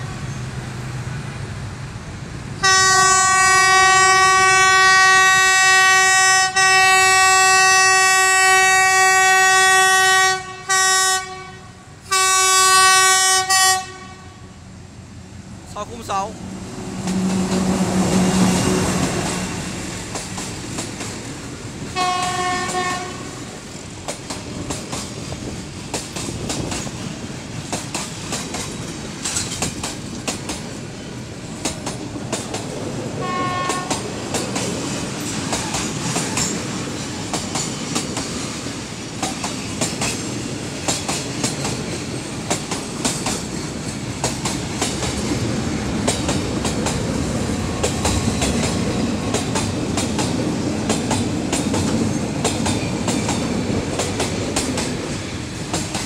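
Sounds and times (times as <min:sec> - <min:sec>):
train horn: 0:02.6 - 0:14.6, 0:22.0 - 0:23.5, 0:33.2 - 0:34.0
train wheels clattering on rails: 0:16.9 - 0:56.0.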